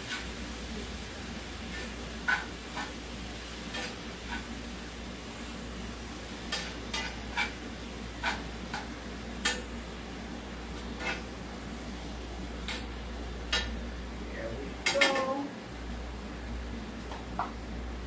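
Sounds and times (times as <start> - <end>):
meat sizzling: 0.0 - 14.3
utensil scraping a skillet: 1.7 - 4.7, 6.4 - 9.7, 10.8 - 11.4.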